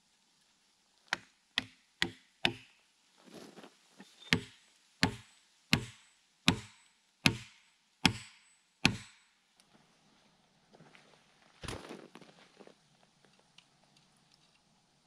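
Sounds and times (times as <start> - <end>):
axe hammering wooden wedges: 1.1 - 2.8, 4.3 - 9.2.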